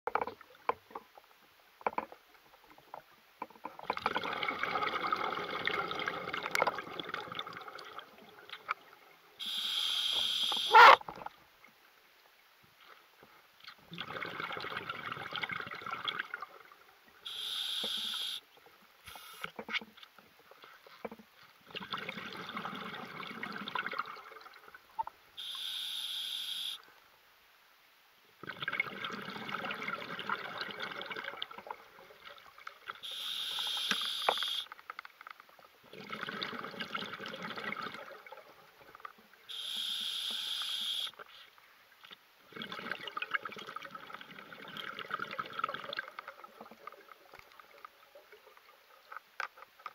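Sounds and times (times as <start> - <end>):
regulator inhale hiss: 17.3 - 18.4, 39.5 - 41.1.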